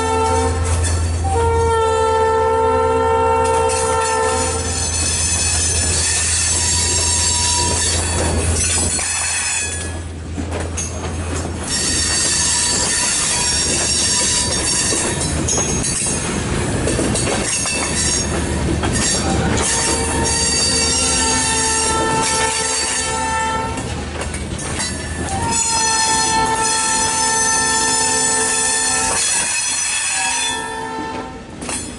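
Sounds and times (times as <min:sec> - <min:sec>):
freight train rumbling past: 0:00.0 - 0:31.9
steel wheels squealing: 0:04.4 - 0:10.1, 0:10.8 - 0:21.7, 0:24.6 - 0:30.7.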